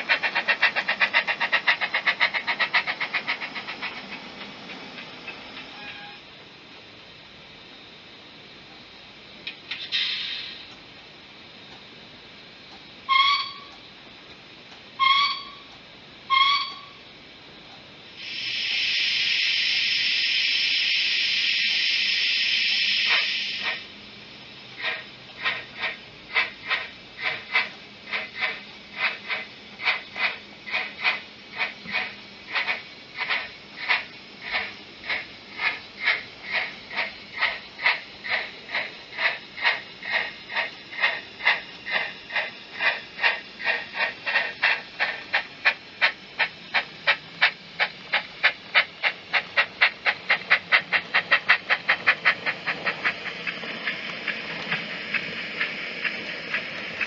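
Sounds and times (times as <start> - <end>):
steam hissing: 0.0 - 6.2, 9.8 - 10.7, 18.1 - 24.0, 24.6 - 57.0
steam locomotive exhaust chuffs: 0.0 - 6.2, 13.0 - 13.9, 15.0 - 17.1, 18.1 - 57.0.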